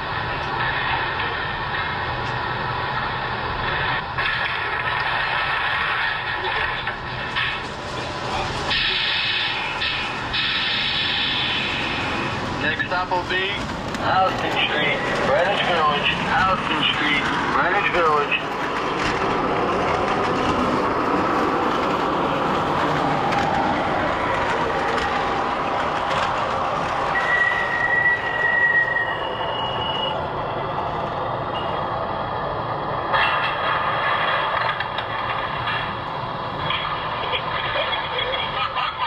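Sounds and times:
model train rumbling on track: 0.0s - 31.6s
high squeals: 27.1s - 30.2s.

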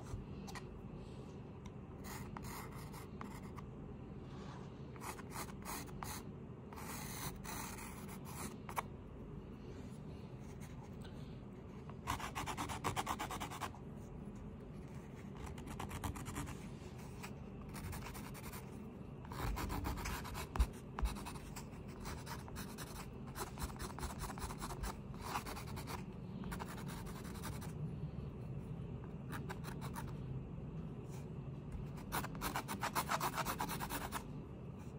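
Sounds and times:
pencil scratching on paper: 2.0s - 3.6s, 5.0s - 8.8s, 12.0s - 13.7s, 14.8s - 27.7s, 32.0s - 34.2s
low hum: 27.6s - 32.0s.

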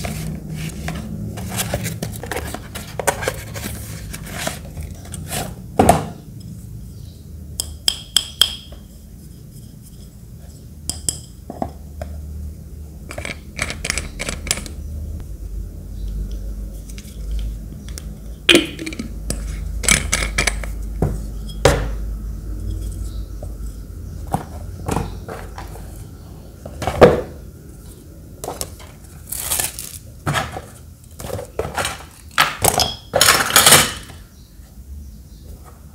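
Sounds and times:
cardboard rubbing and scraping: 0.0s - 5.6s
glass bottle clinking and knocking: 18.5s - 19.2s.

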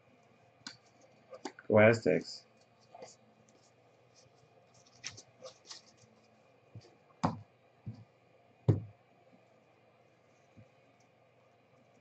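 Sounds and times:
cards knocking on tabletop: 8.7s - 8.9s.

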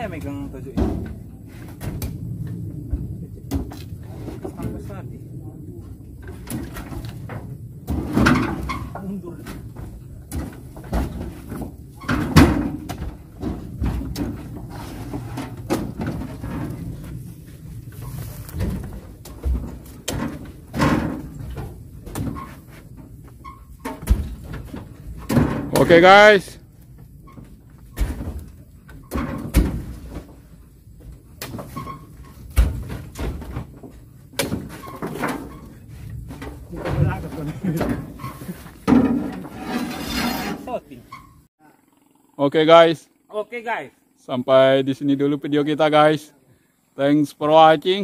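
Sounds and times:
fruit bunches thudding into truck bed: 0.0s - 2.2s, 6.2s - 23.2s, 23.8s - 26.4s, 27.3s - 39.6s.

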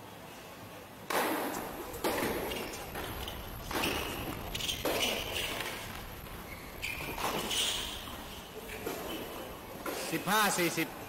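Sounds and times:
tennis ball hit by racket: 1.1s - 5.8s.

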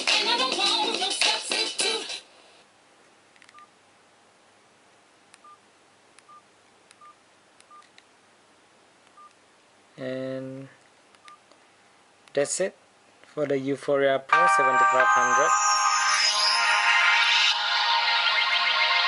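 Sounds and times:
music: 0.0s - 2.2s, 14.3s - 19.0s.

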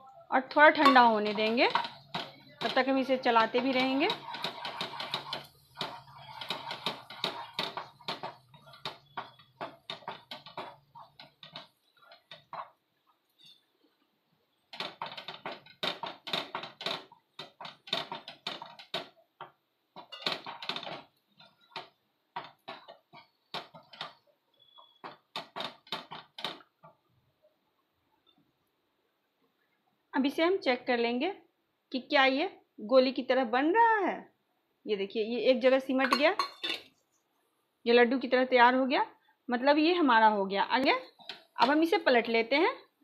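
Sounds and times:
wooden spatula scraping a pan: 0.5s - 26.7s.

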